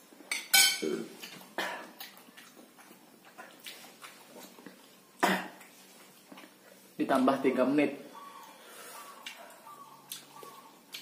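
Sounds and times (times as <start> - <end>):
fork and spoon clinking on plate: 0.3 - 0.9.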